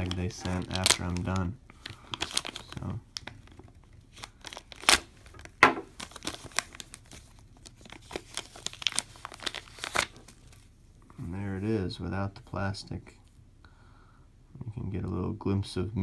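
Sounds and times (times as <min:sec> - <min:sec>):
plastic packaging crinkling: 0:00.0 - 0:10.7.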